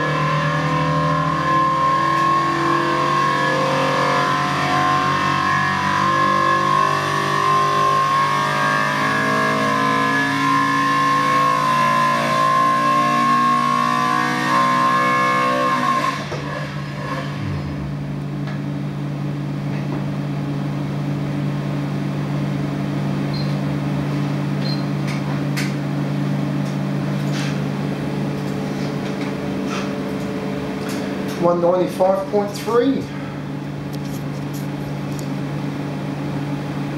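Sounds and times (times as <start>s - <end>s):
race engine revving at full throttle: 0.0s - 19.6s
engine winding down: 0.0s - 20.2s
steady hum: 16.7s - 36.9s.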